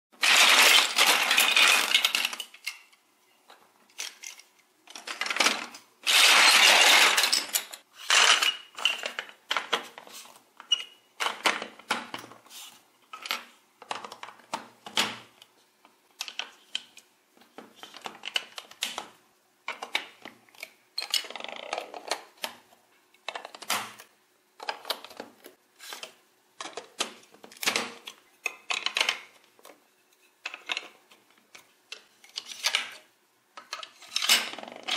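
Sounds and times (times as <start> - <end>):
plastic bricks clattering: 0.2 - 2.9, 3.9 - 10.0.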